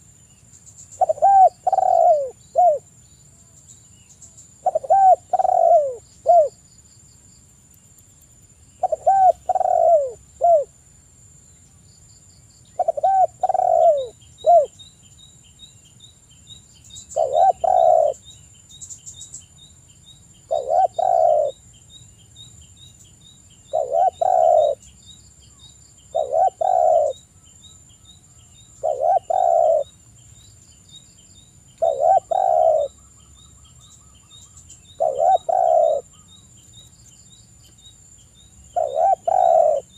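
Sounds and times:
dove cooing: 1.0s - 2.9s, 4.6s - 6.6s, 8.8s - 10.7s, 12.8s - 14.8s, 17.1s - 18.2s, 20.5s - 21.6s, 23.7s - 24.8s, 26.1s - 27.2s, 28.8s - 29.9s, 31.8s - 33.0s, 34.9s - 36.3s, 38.8s - 39.9s.

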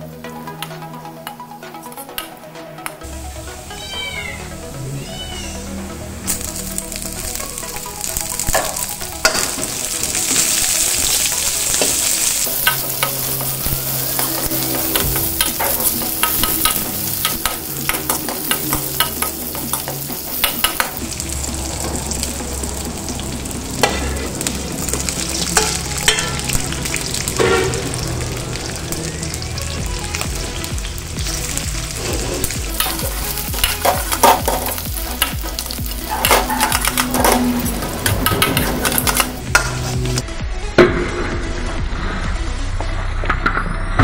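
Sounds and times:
onions sizzling in hot oil: 6.3s - 40.2s
metal spatula scraping a wok: 32.0s - 40.1s.

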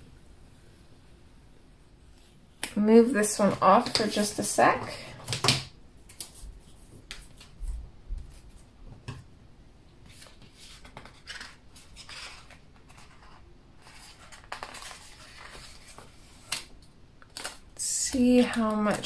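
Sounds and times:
paper rustling: 10.0s - 16.7s.

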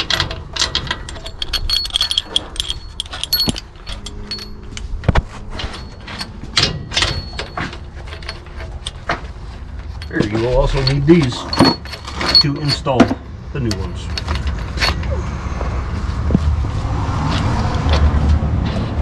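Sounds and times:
metal tool clinking on steel: 0.0s - 15.1s.

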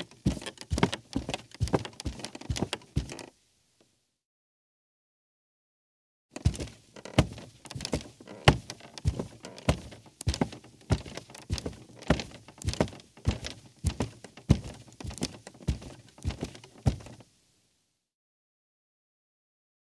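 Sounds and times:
footsteps on creaky rug: 0.0s - 3.3s, 6.4s - 17.2s.

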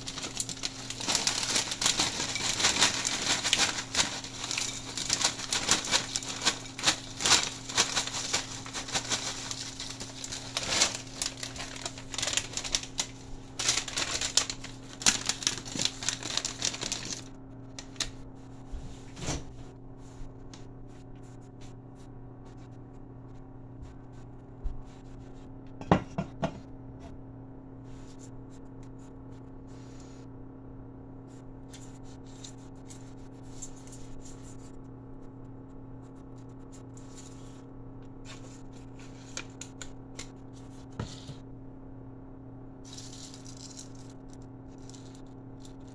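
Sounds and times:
chips clattering onto plate: 0.0s - 17.3s, 42.9s - 45.9s
chip bag rustling: 0.0s - 17.4s, 42.9s - 45.9s
steady low hum: 0.0s - 45.9s.

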